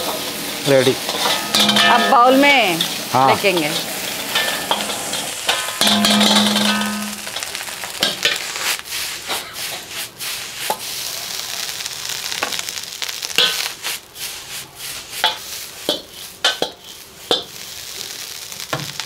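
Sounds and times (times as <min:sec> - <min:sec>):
rice sizzling in a pan: 0:00.0 - 0:19.0
metal ladle clanking on pan: 0:00.9 - 0:08.4, 0:15.2 - 0:17.5.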